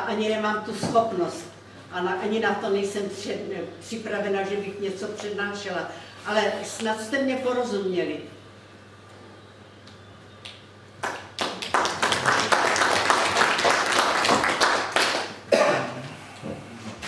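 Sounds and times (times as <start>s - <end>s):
audience clapping: 10.4s - 15.5s.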